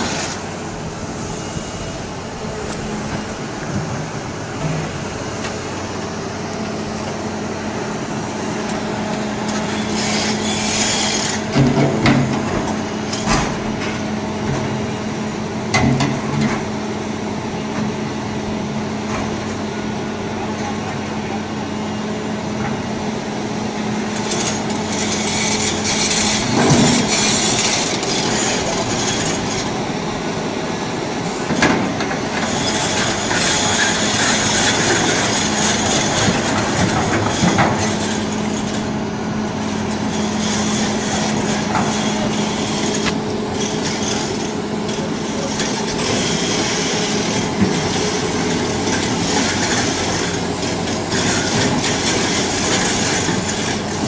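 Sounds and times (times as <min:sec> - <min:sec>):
excavator engine hum: 0:00.0 - 0:54.0
stone grinding on steel: 0:09.8 - 0:11.5.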